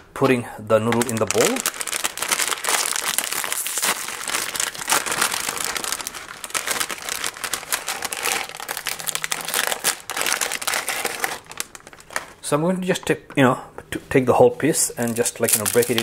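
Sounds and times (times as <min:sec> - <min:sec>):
plastic packet crinkling: 0:00.7 - 0:12.5, 0:15.0 - 0:16.0.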